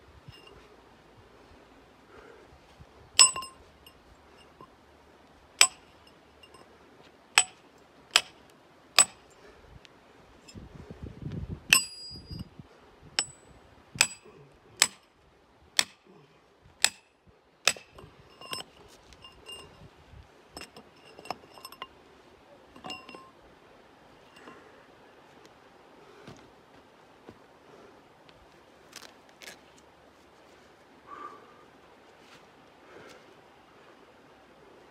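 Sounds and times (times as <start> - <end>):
sledgehammer striking steel chisel: 3.2 - 3.6, 5.6 - 6.6, 7.4 - 8.4, 9.0 - 9.2, 11.7 - 12.4, 14.0 - 15.0, 15.8 - 16.0, 16.8 - 18.7, 20.6 - 21.9, 22.8 - 23.3.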